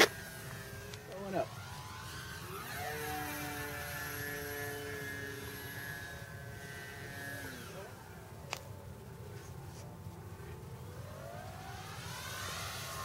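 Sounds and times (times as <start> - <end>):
model plane motor whining: 0.0 - 8.2, 10.9 - 13.0.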